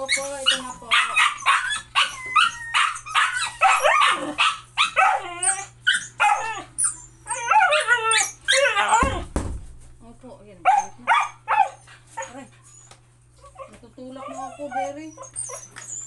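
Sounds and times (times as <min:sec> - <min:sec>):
dogs barking and whining: 0:00.0 - 0:09.3, 0:10.6 - 0:16.0
dull thump: 0:09.0 - 0:10.0.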